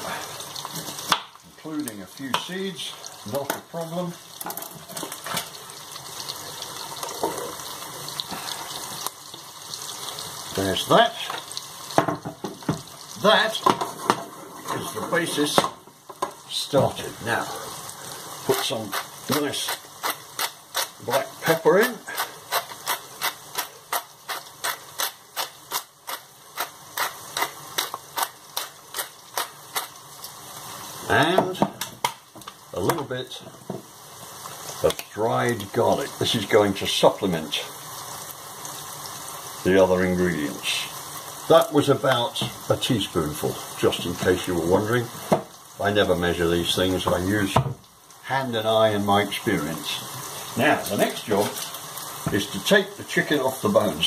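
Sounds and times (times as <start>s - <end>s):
onions sizzling in oil: 0.0s - 54.0s
pepper mill grinding and clicking: 18.5s - 30.0s.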